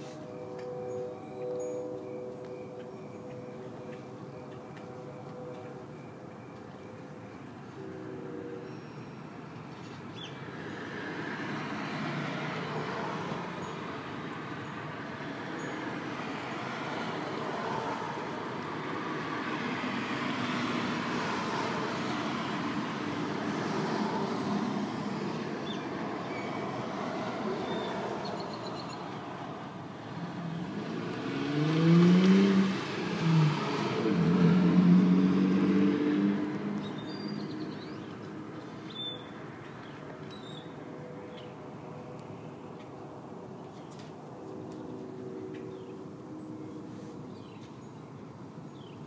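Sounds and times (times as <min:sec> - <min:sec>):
distant traffic: 0:00.0 - 0:49.0
vehicle engine passing: 0:29.9 - 0:38.6.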